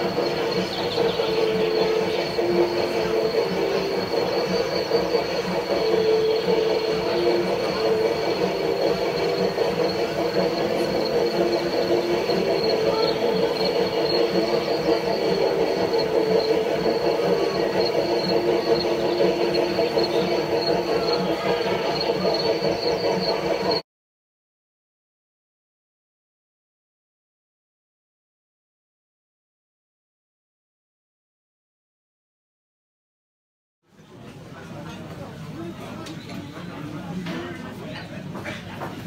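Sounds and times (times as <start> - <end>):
model train mechanical hum: 0.0 - 23.8, 33.9 - 39.0.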